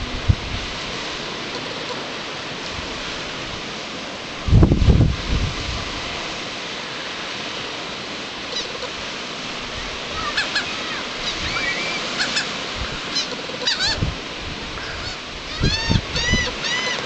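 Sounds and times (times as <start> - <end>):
surf washing: 0.0 - 17.0
wind: 0.0 - 17.0
high bird calls: 10.1 - 14.0, 14.8 - 17.0.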